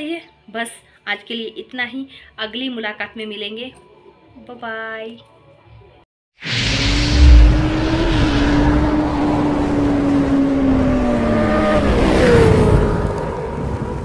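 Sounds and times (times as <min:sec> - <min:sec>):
heavy hit: 0:06.4 - 0:10.0.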